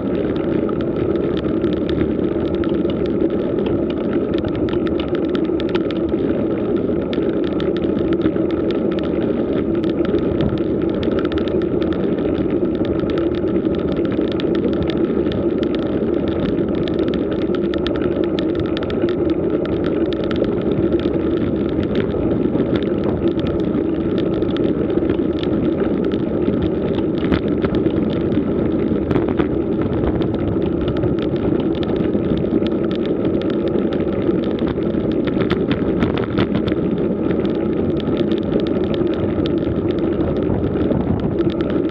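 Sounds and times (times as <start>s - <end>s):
wind on microphone: 0.0s - 5.0s, 6.8s - 41.9s
bicycle tyres rolling on asphalt: 0.0s - 41.9s.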